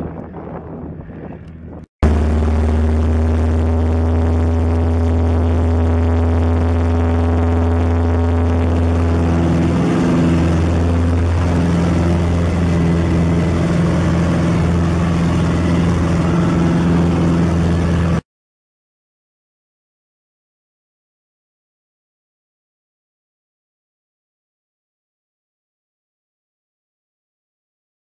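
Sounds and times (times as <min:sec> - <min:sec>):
small plane engine and propeller: 0:00.0 - 0:18.2.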